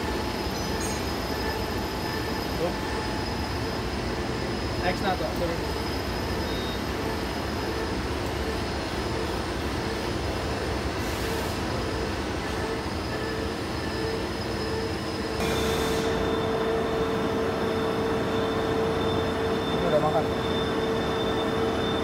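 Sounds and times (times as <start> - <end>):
lathe machine running: 15.4 - 22.0.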